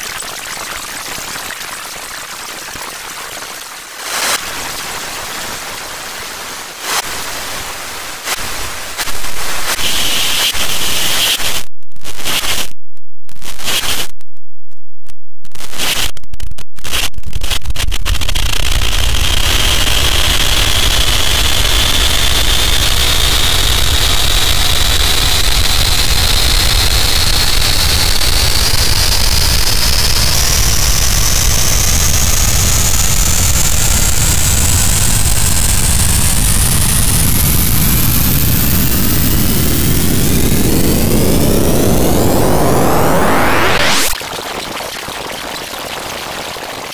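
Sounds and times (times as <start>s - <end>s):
distorted static-like noise: 3.6s - 46.9s
high whine rising in pitch: 30.4s - 44.2s.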